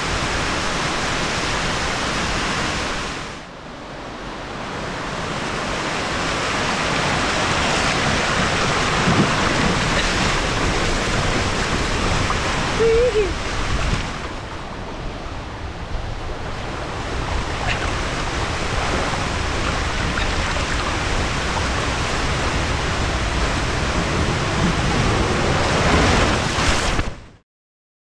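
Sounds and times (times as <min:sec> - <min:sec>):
water rushing down slide: 0:05.8 - 0:14.4, 0:17.2 - 0:27.2.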